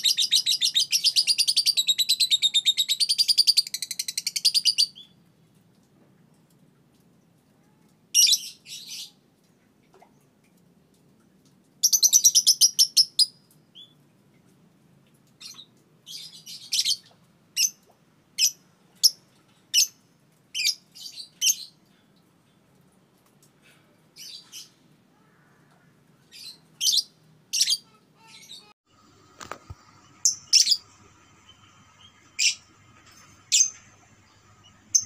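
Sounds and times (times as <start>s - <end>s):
lovebird calling: 29.8s - 35.0s.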